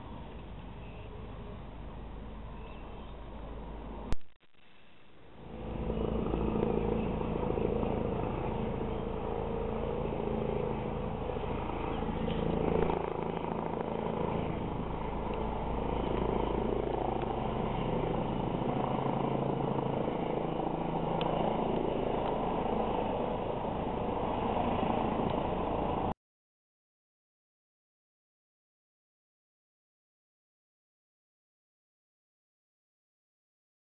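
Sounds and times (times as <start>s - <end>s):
helicopter rotor and engine drone: 0.0s - 4.2s, 5.2s - 26.2s.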